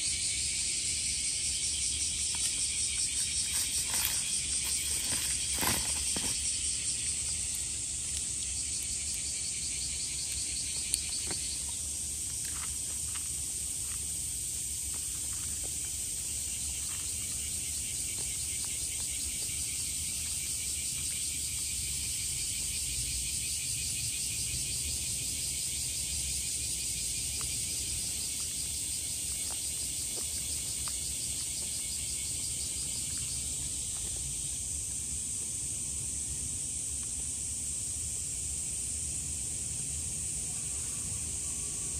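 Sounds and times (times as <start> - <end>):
insects buzzing: 0.0 - 41.9.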